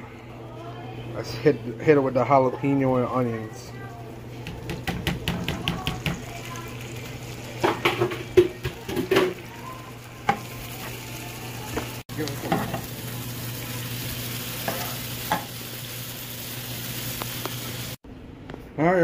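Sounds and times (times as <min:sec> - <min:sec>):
food sizzling in oil: 0:01.2 - 0:18.0.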